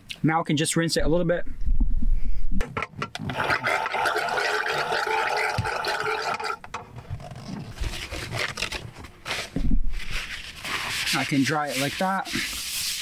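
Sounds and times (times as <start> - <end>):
small water pump running: 3.2 - 6.7
water pouring into sink: 3.3 - 6.6
paper towel rustling: 7.8 - 13.0.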